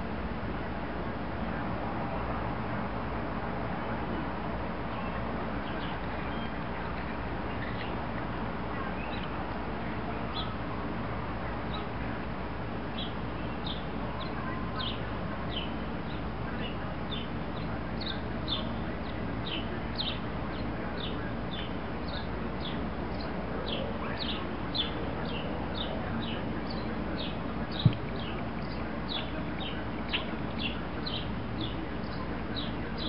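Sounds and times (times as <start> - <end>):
bird chirping: 4.9 - 8.0, 12.9 - 33.0.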